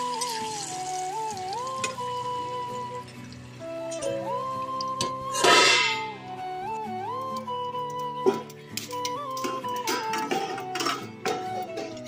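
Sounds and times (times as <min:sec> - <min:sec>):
food frying in oil: 0:00.0 - 0:03.6
background music melody: 0:00.0 - 0:12.0.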